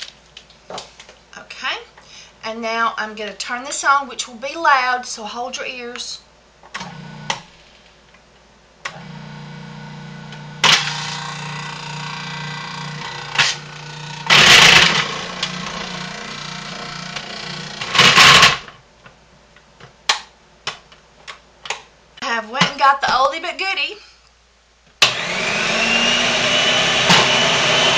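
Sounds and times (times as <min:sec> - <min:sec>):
food processor motor humming: 0:08.9 - 0:18.6, 0:25.0 - 0:27.9
soap grinding in food processor: 0:08.9 - 0:18.6, 0:25.1 - 0:27.9.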